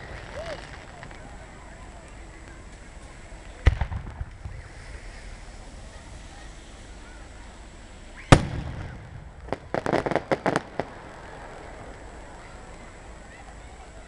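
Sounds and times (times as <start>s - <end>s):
fireworks bangs: 0.0s - 7.0s, 8.0s - 13.6s
fireworks crackling pops: 0.0s - 14.0s
rumbling echo: 3.6s - 5.0s.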